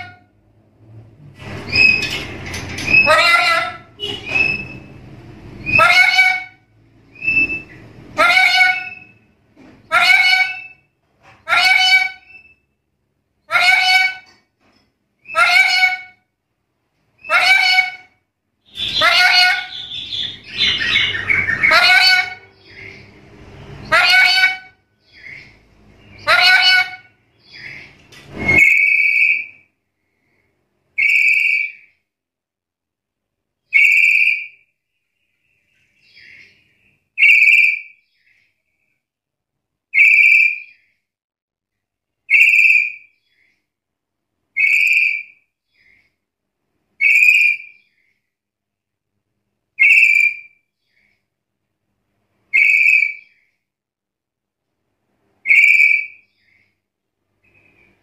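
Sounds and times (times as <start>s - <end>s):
parrot high-pitched call: 1.7s - 4.9s, 5.6s - 9.3s, 9.9s - 12.6s, 13.4s - 14.3s, 15.2s - 16.2s, 17.2s - 23.1s, 23.8s - 29.7s, 31.0s - 31.9s, 33.7s - 34.6s, 37.2s - 38.0s, 39.9s - 40.8s, 42.3s - 43.1s, 44.6s - 45.4s, 47.0s - 47.8s, 49.8s - 50.6s, 52.5s - 53.4s, 55.4s - 56.3s.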